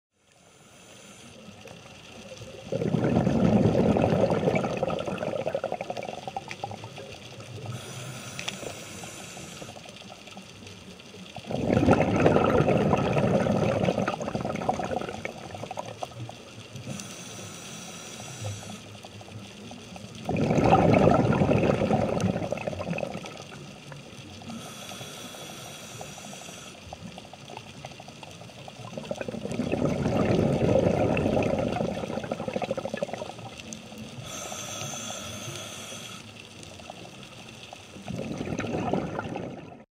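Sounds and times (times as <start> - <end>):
regulator inhale hiss: 0.2 - 2.2, 7.6 - 10.4, 16.8 - 19.2, 24.4 - 27.1, 34.0 - 38.1
bubbly underwater exhalations: 2.5 - 7.9, 11.4 - 16.1, 20.2 - 23.9, 28.8 - 34.4, 38.0 - 39.9.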